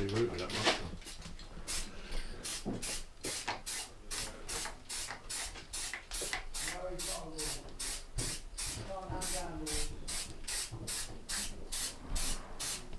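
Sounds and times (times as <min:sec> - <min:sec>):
spray paint can hissing: 0:01.7 - 0:12.8.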